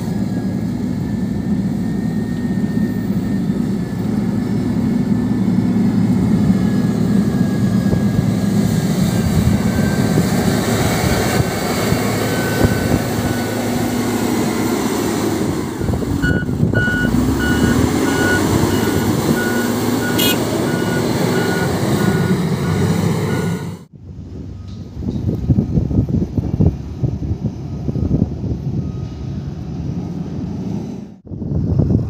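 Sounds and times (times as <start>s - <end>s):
reversing alarm beeping: 0.0s - 8.2s, 12.2s - 14.7s, 15.7s - 23.8s
diesel engine running under load: 0.0s - 32.0s.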